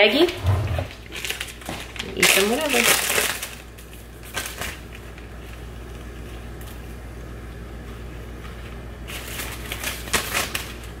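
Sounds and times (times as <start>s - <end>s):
steady low hum: 0.0s - 10.1s
plastic zipper bag crinkling: 0.2s - 5.6s.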